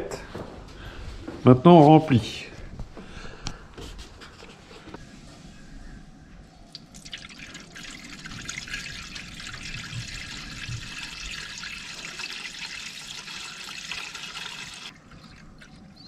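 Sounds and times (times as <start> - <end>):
liquid pouring and splashing: 6.7 - 16.0.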